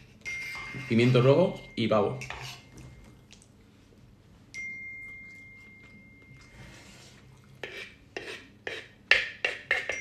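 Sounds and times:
clear bell-like ring: 0.2s - 3.1s, 4.5s - 6.6s.

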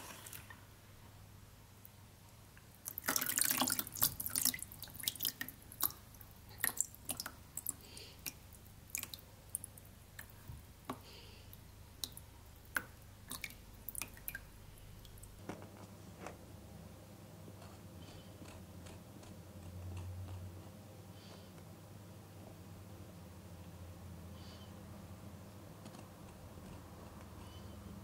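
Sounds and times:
water dripping into tub: 2.6s - 15.4s.

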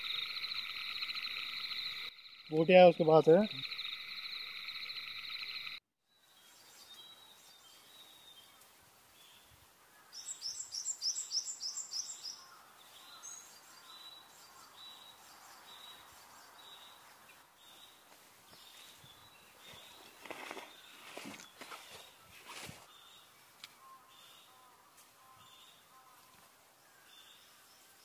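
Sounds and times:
high chirps: 0.0s - 5.8s
high-pitched trilling chorus: 0.0s - 5.8s.

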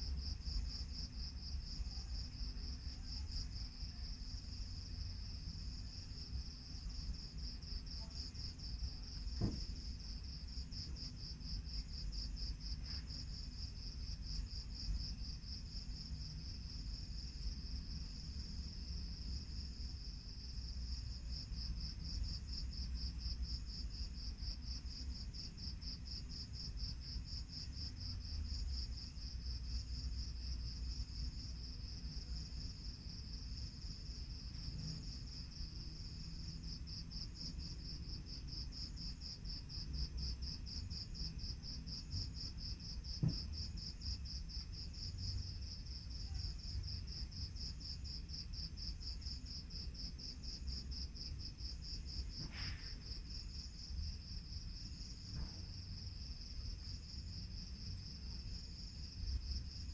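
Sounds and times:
short knock: 9.3s - 9.8s, 43.2s - 43.6s.

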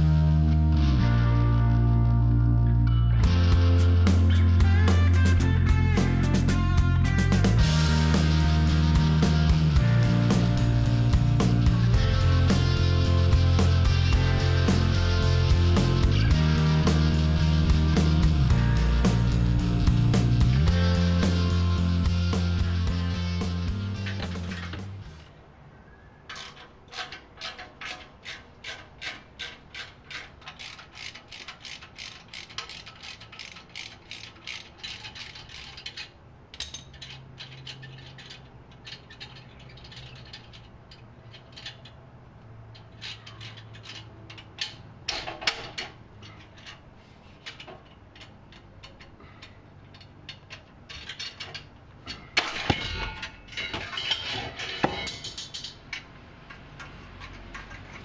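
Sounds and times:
metal clatter: 23.9s - 25.3s, 26.3s - 42.0s, 42.7s - 58.0s
ratchet wrench clicking: 26.3s - 42.0s.

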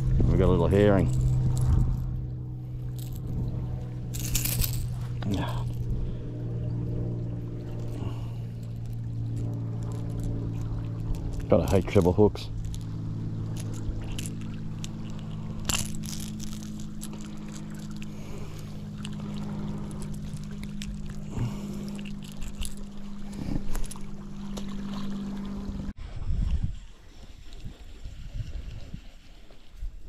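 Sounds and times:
low motor hum: 0.0s - 30.0s
small clicks of lure handling: 13.5s - 24.7s.

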